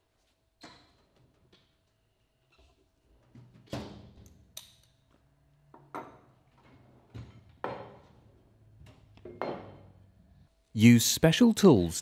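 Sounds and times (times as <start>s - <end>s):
metal tools knocking on wood: 9.2s - 9.9s.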